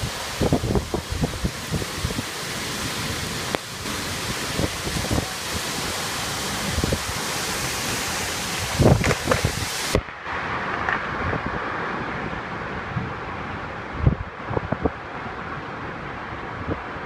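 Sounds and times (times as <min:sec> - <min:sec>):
wind buffeting microphone: 0:00.0 - 0:10.1, 0:12.8 - 0:15.2
heavy rain hissing: 0:00.0 - 0:17.0.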